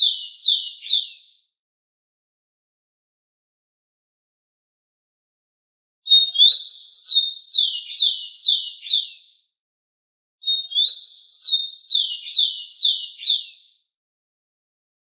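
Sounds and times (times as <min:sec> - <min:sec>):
sparrow singing: 0:00.0 - 0:01.4, 0:06.1 - 0:09.4, 0:10.4 - 0:13.8.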